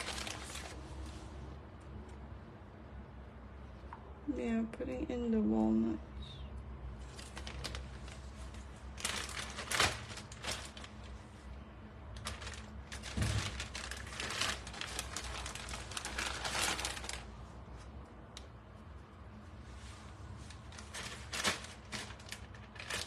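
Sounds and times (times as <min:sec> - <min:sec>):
plastic bag crinkling: 0:00.0 - 0:00.9, 0:07.0 - 0:11.3, 0:12.1 - 0:17.4, 0:20.4 - 0:23.0.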